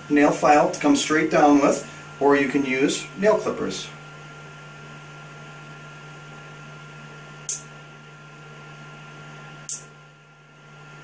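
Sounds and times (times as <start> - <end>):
steady low hum: 0.0 - 11.0
nail clippers snipping: 7.5 - 7.7, 9.7 - 9.9.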